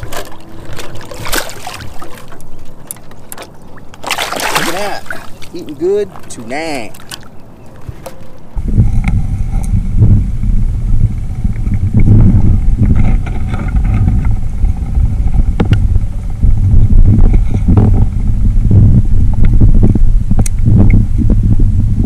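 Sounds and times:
underwater rumble of water: 8.5 - 22.0.

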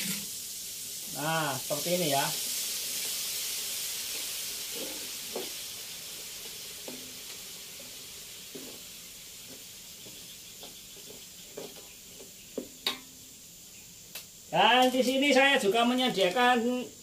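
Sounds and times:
metal ladle scraping a wok: 0.0 - 0.4, 4.1 - 5.6
paste sizzling in hot oil: 0.0 - 17.0.

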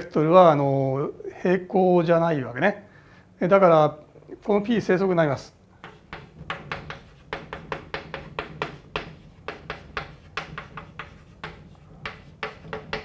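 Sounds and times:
steady low hum: 0.0 - 13.0
chalk tapping and scratching: 5.8 - 13.0.

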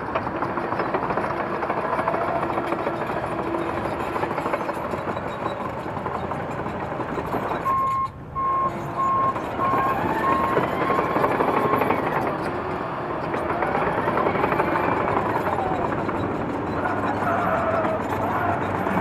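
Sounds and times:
reverse warning beeper: 7.7 - 11.2
mobility scooter motor and tyres: 8.8 - 19.0.

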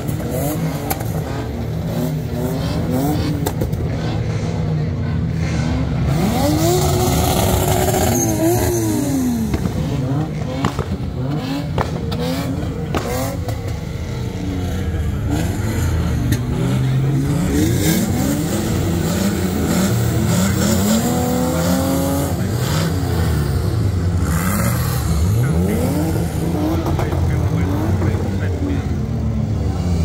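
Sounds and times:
car engines revving hard: 0.0 - 30.0.

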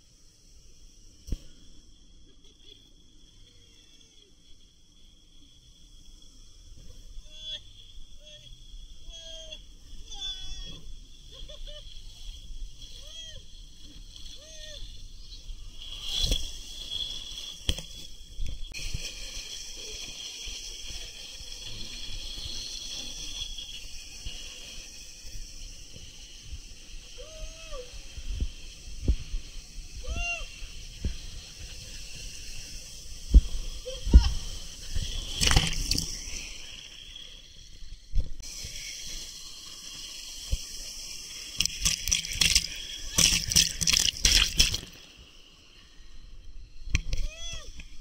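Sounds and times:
water rushing down tube slide: 10.7 - 45.2
water splashing: 35.0 - 36.3, 41.6 - 45.0.

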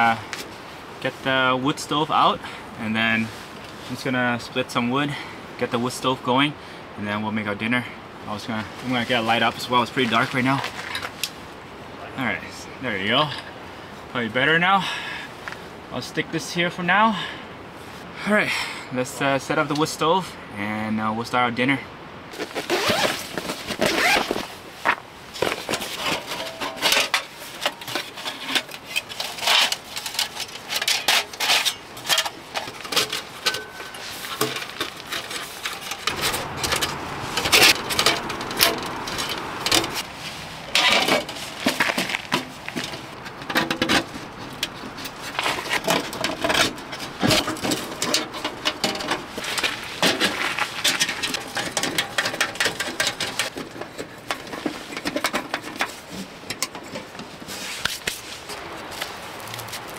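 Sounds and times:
bag rustling: 22.3 - 26.3
metal parts clinking and knocking: 26.0 - 40.0.

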